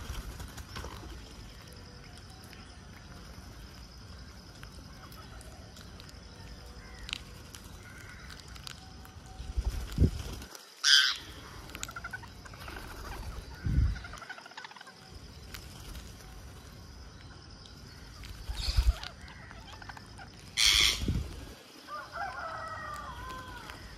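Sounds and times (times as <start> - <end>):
parakeets clicking while feeding: 0.1 - 13.3
harsh parakeet squawk: 20.6 - 21.0.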